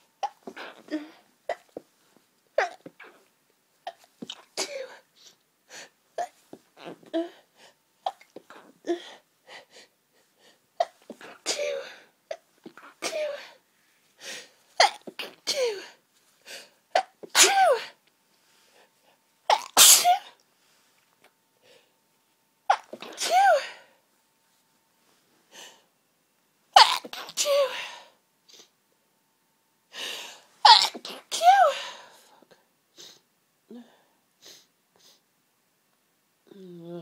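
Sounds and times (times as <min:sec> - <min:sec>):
woman sneezing: 0:19.5 - 0:20.4, 0:22.7 - 0:23.9, 0:30.7 - 0:32.1.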